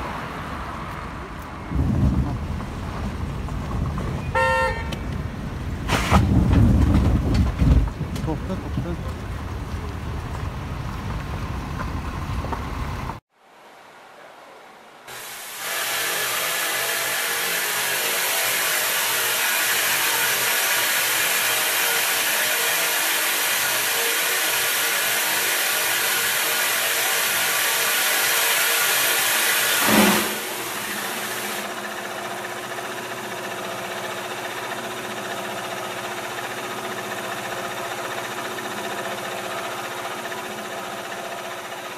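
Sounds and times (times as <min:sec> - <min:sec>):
steam hissing from pipe: 0:15.1 - 0:31.8.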